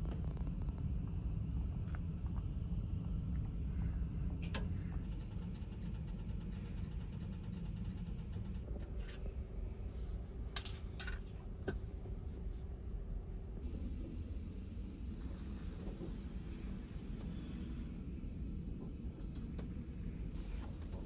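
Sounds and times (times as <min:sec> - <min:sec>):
low rumble: 0:00.0 - 0:06.8
metal hangers clinking: 0:10.6 - 0:11.4.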